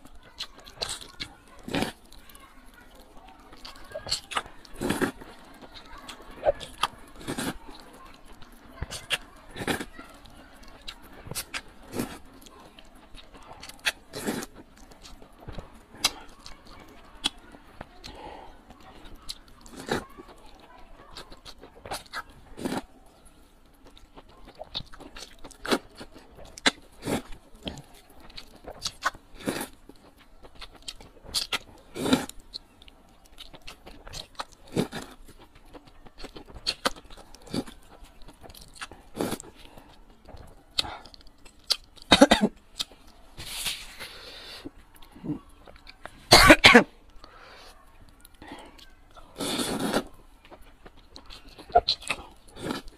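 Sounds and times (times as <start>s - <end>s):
chewing: 0.0s - 52.9s
noodle slurping: 49.4s - 50.2s.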